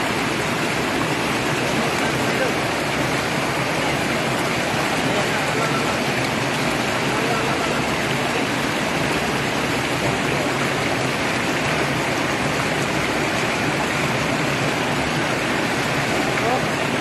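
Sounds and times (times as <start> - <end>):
water rushing in a concrete drain: 0.0 - 17.0.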